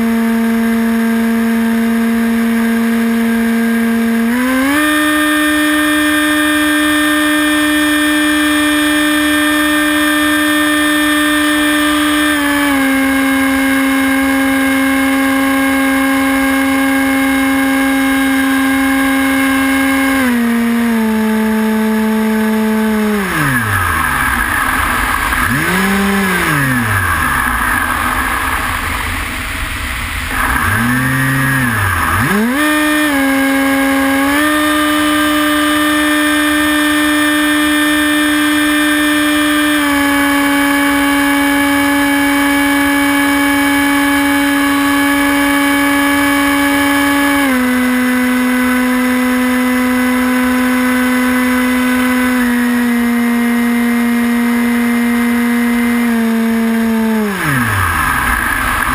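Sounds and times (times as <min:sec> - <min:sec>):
electric motor and propeller whine: 0:00.0 - 0:58.9
wind rush: 0:23.6 - 0:30.5.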